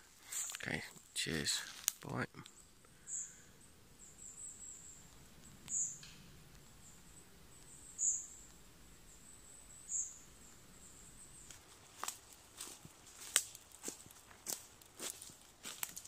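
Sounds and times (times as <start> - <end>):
background hiss: 0.0 - 16.0.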